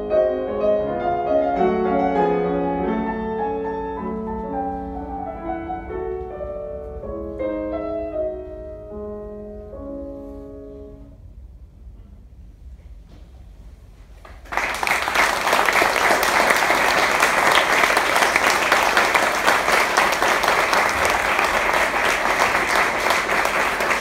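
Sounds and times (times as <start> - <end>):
audience applauding: 14.2 - 24.0.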